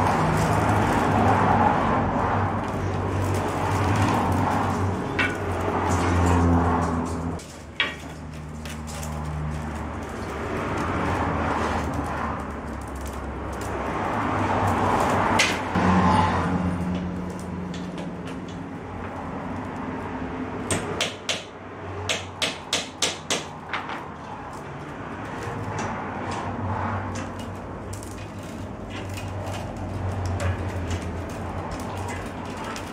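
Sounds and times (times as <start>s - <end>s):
willow rods rustling and scraping: 0.0s - 20.6s, 23.6s - 32.9s
sharp taps and knocks: 20.6s - 24.4s.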